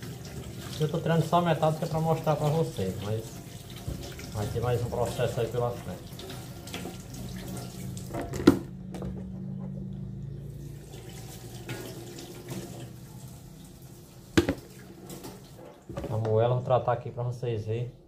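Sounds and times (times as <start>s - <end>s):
tap running into metal sink: 14.3s - 16.3s.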